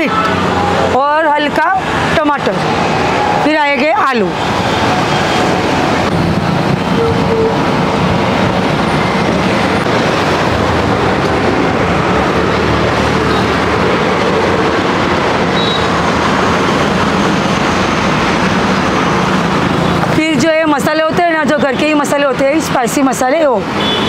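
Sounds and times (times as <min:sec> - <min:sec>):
road traffic rumble: 0:00.0 - 0:24.0.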